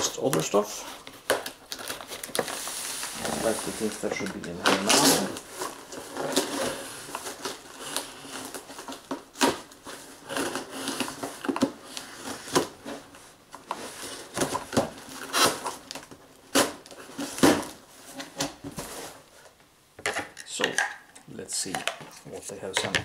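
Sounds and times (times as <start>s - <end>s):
knife cutting packing tape: 15.2s - 17.7s.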